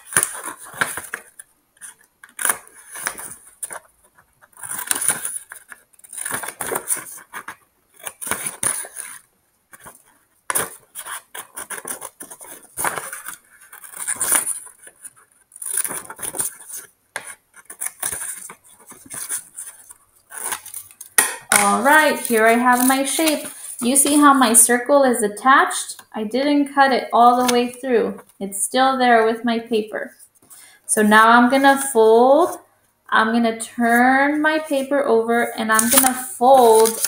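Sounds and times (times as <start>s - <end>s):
scissors snipping paper: 0.0s - 24.3s, 27.3s - 27.8s, 35.7s - 37.0s
paper rustling: 0.0s - 24.8s, 27.2s - 28.3s, 30.2s - 32.6s, 33.8s - 37.0s.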